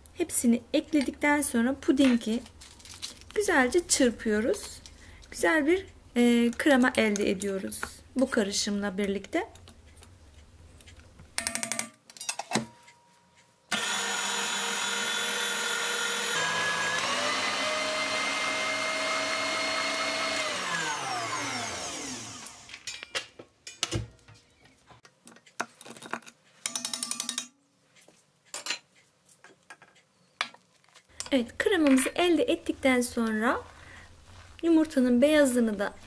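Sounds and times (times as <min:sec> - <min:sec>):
electric mixer motor: 0:13.7 - 0:22.8.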